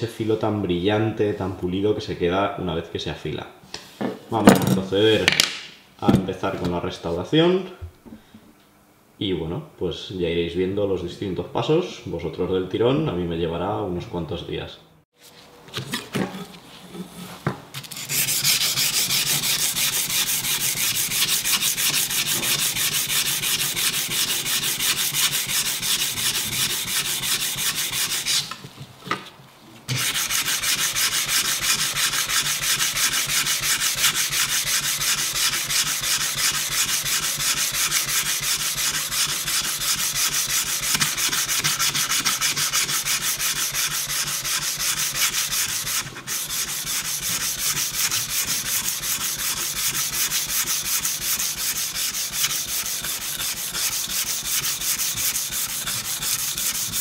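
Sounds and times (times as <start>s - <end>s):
sanding knife blade: 17.8s - 28.6s, 29.9s - 57.0s.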